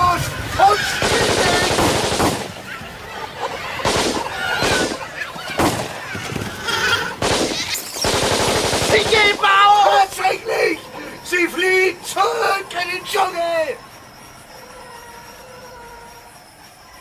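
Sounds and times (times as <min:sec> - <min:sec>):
shrill cries: 0:00.0 - 0:08.3, 0:08.9 - 0:17.0
gunshots with echo: 0:00.7 - 0:02.8, 0:03.8 - 0:06.2, 0:07.2 - 0:09.7.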